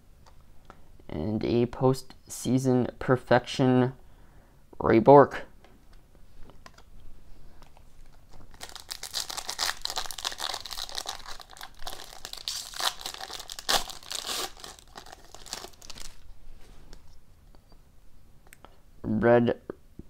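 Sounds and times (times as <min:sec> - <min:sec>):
foil wrapper crinkling: 0:08.0 - 0:16.3
loud foil crackle: 0:08.5 - 0:16.2.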